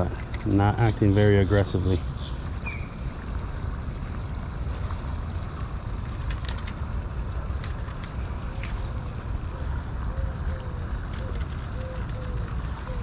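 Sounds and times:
faint clicks: 0:10.5 - 0:13.0.

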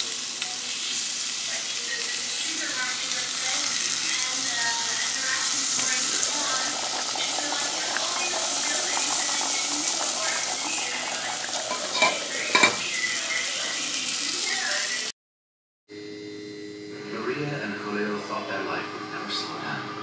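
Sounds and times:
food sizzling in a pot: 0:00.0 - 0:15.1
pot lid clinking: 0:11.4 - 0:13.0.

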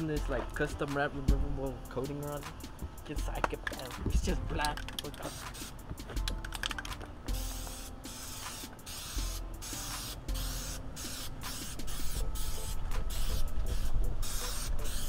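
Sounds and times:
aerosol spray hissing: 0:05.0 - 0:06.0, 0:07.3 - 0:15.0.

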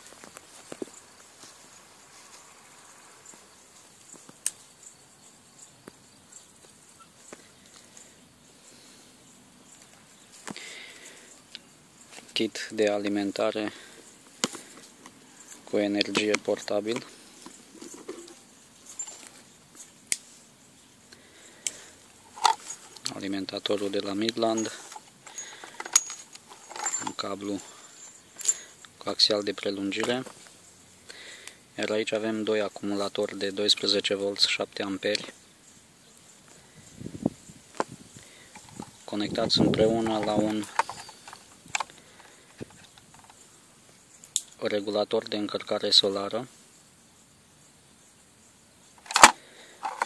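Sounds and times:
insects chirping: 0:00.0 - 0:50.0
cables clicking in plastic case: 0:40.0 - 0:43.4, 0:49.0 - 0:50.0.

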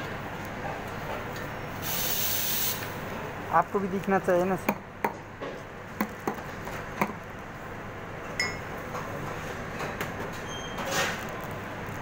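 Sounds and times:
busy kitchen background noise: 0:00.0 - 0:12.0
clinks of metalware and crockery: 0:08.4 - 0:08.7.

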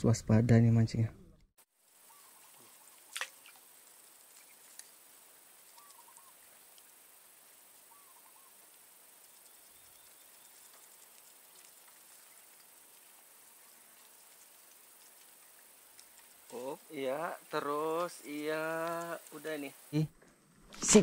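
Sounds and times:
faint short chirping calls: 0:02.0 - 0:04.7, 0:05.6 - 0:06.5, 0:07.8 - 0:12.8.

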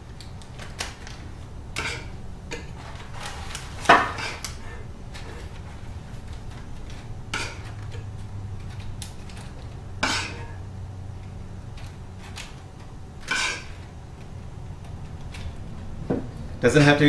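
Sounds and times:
metal spoon scraping a saucepan: 0:13.2 - 0:13.8.

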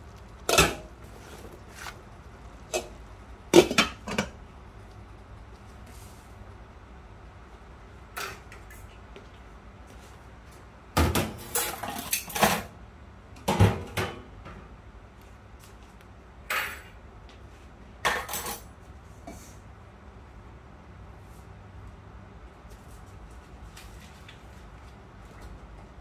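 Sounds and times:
dishes and utensils clattering: 0:03.6 - 0:04.4, 0:11.0 - 0:12.7, 0:18.1 - 0:18.7.

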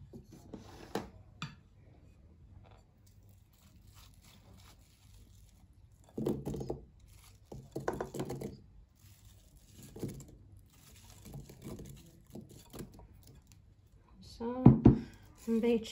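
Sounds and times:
utensil scraping glass bowl: 0:03.1 - 0:13.6, 0:15.2 - 0:15.9
apple pieces tumbling onto dough: 0:06.0 - 0:08.7, 0:09.4 - 0:13.4.

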